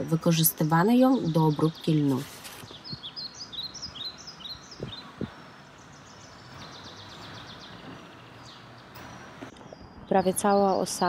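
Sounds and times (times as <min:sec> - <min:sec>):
outdoor background noise: 0:00.0 - 0:11.0
songbirds chirping: 0:00.0 - 0:11.0.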